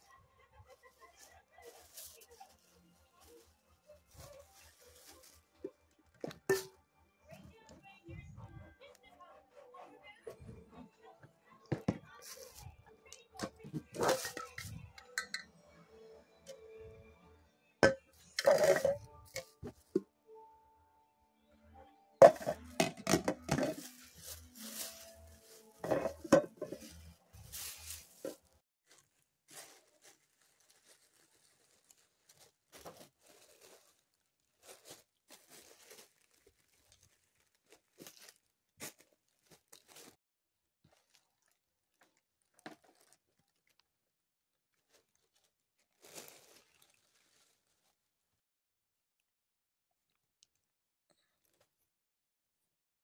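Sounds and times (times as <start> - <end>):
plastic bags rustling: 0.7 - 6.6, 13.6 - 14.9, 22.2 - 40.2, 40.9 - 43.8, 44.7 - 48.2.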